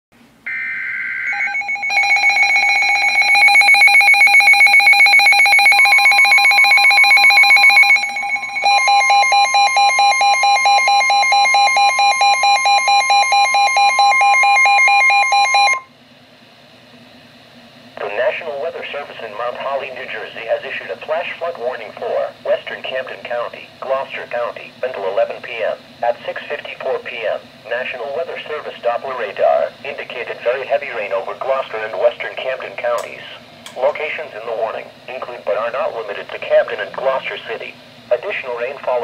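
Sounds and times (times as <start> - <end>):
rapidly pulsing electronic alarm: 0.4 - 15.9
steady warning alert tone: 0.5 - 15.8.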